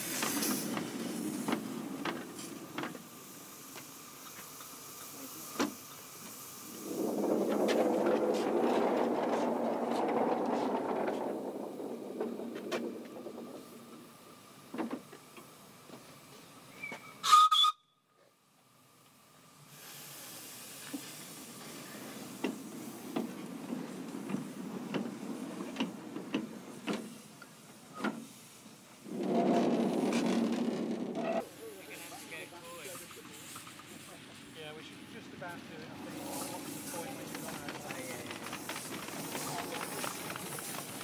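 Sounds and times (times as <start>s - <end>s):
steam locomotive hissing: 0.0s - 17.7s, 18.7s - 41.0s
shrill steam whistle: 16.7s - 18.1s.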